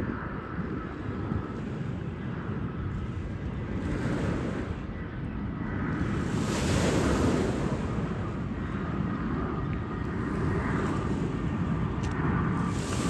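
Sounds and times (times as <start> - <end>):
faint airliner hum: 0.0 - 13.0
wind buffeting microphone: 0.0 - 13.0
waves washing on shore: 6.0 - 8.6, 12.6 - 13.0.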